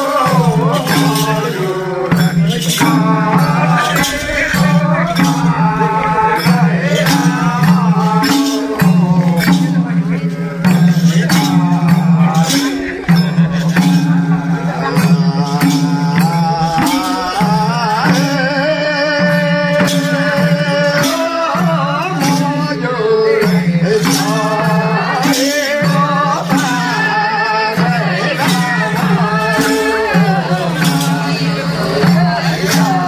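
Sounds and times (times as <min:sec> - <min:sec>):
folk song singing: 0:00.0 - 0:33.0
percussion strokes: 0:00.0 - 0:33.0
low drone: 0:00.6 - 0:08.2.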